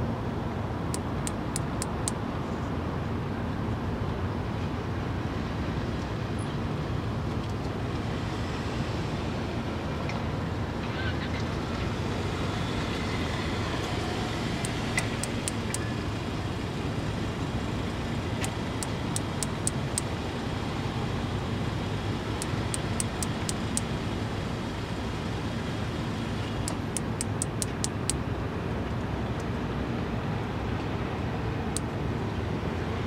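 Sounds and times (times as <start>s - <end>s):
cicada wing-clicking: 12.8s - 16.3s, 17.9s - 20.1s, 22.3s - 24.0s, 26.4s - 28.2s.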